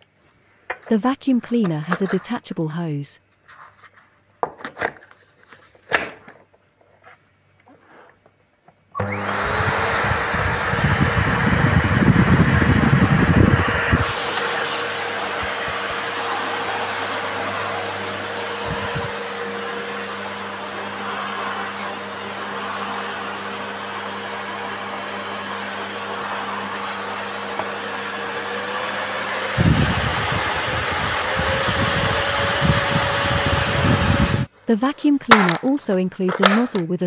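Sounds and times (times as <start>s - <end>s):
vacuum cleaner motor whine: 9.0s - 34.5s.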